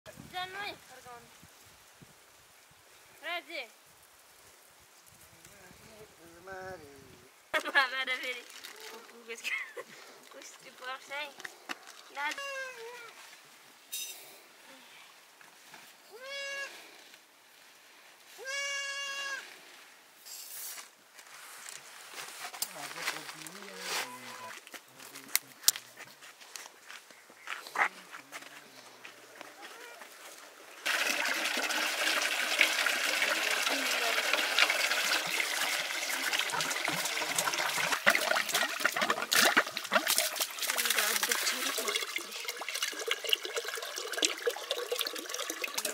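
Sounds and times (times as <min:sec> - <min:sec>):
goat bleating: 0:16.2 - 0:16.8, 0:18.4 - 0:19.4
running splashing water: 0:30.0 - 0:45.9.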